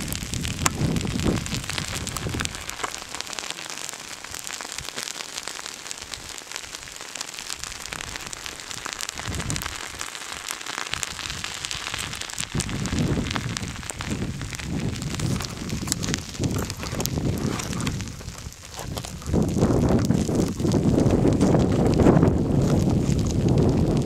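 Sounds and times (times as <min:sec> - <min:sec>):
low rumbles: 0:00.0 - 0:04.9, 0:11.1 - 0:24.0
lava crackling and popping: 0:00.0 - 0:24.0.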